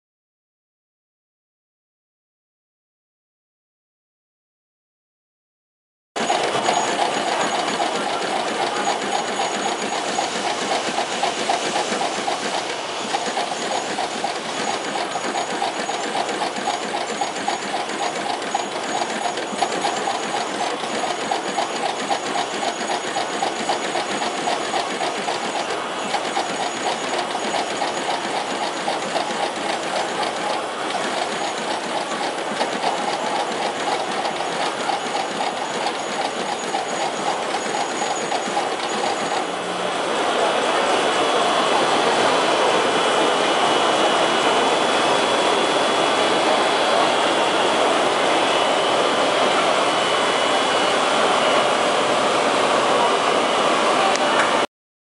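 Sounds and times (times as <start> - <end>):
machine clattering with dense clicks: 6.2 - 39.5.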